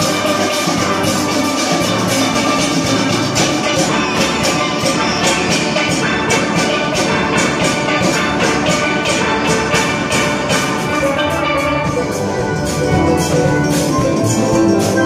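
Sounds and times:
steel pan band playing: 0.0 - 15.0.

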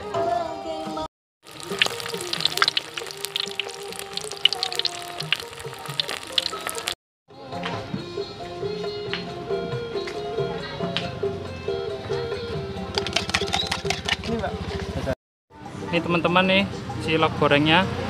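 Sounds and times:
deep-frying in hot oil: 1.4 - 7.0
oil popping and crackling: 1.4 - 7.0, 13.0 - 14.3.

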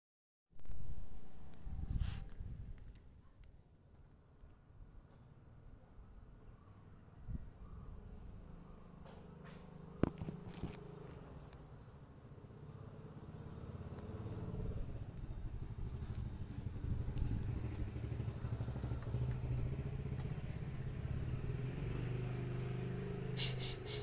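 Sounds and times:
low engine hum: 7.2 - 24.0.

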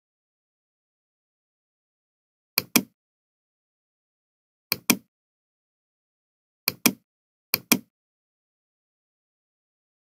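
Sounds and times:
computer mouse clicks: 2.6 - 3.0, 4.7 - 5.1, 6.7 - 7.0, 7.6 - 7.9.

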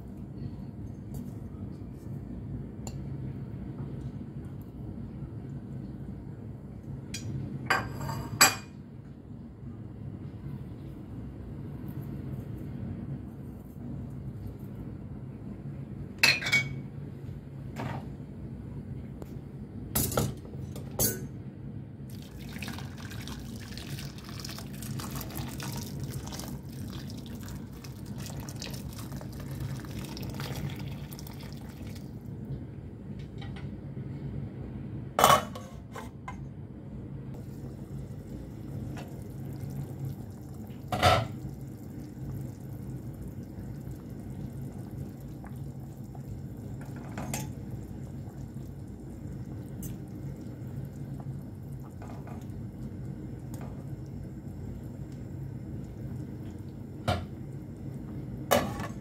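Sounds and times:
steady low hum: 0.0 - 59.0
water pouring into a pot: 22.1 - 32.3, 37.4 - 56.8.

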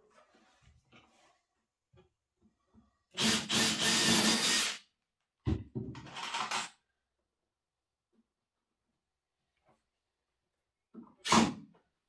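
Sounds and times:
cordless drill drilling into wood: 3.2 - 4.8.

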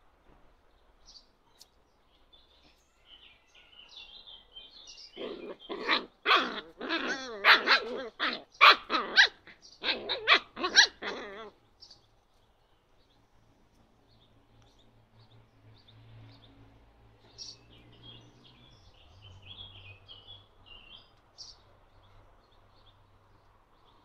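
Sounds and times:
puppies yapping: 5.2 - 11.6.

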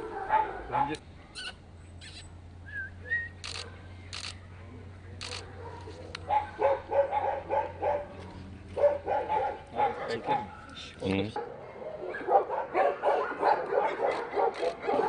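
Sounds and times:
dog barking: 0.0 - 1.0, 5.3 - 15.0.

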